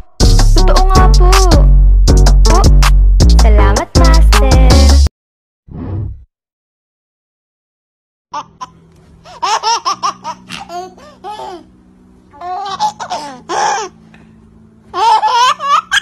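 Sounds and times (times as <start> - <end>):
baby laughing: 8.4 - 11.7, 12.3 - 14.0, 14.9 - 16.0.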